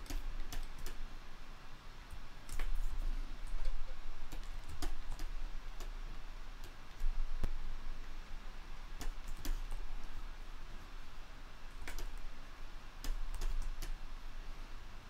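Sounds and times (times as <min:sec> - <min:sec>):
computer keys clicking: 0:00.0 - 0:01.0, 0:02.5 - 0:06.0, 0:09.0 - 0:09.9, 0:11.7 - 0:12.2, 0:13.0 - 0:14.0
steady low hum: 0:00.0 - 0:15.0.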